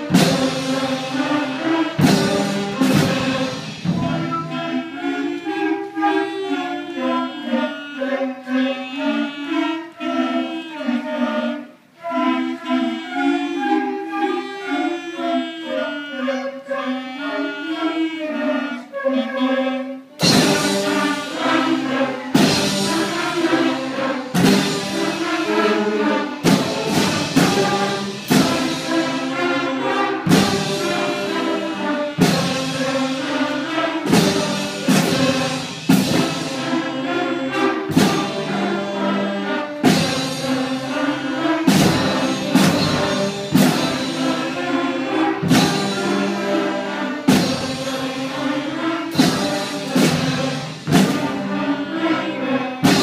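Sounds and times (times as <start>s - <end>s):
drum strokes: 0.0s - 8.0s, 20.1s - 53.0s
flutes and clarinets holding notes: 0.0s - 53.0s.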